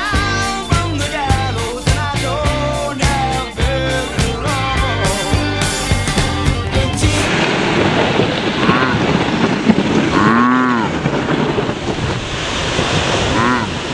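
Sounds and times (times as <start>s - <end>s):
rock song: 0.0s - 7.6s
wind buffeting microphone: 6.6s - 13.9s.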